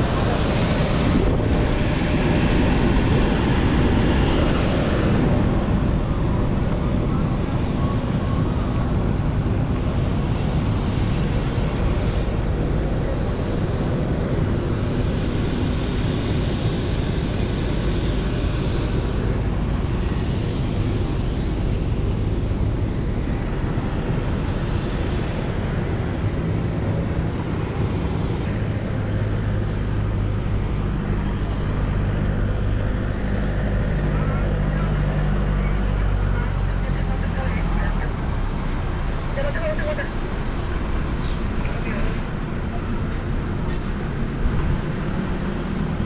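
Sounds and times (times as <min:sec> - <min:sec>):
airliner engine and airflow rumble: 0:00.0 - 0:46.0.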